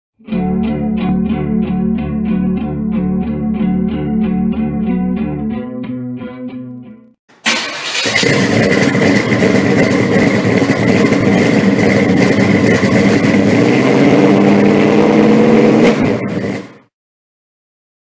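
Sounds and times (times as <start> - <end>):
car engine running: 7.5 - 16.9.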